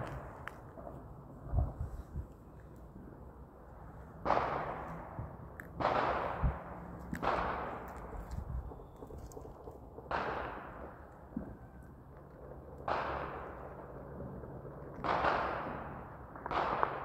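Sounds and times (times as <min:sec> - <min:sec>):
distant gunshots echoing: 0:04.1 - 0:11.8, 0:12.4 - 0:17.0.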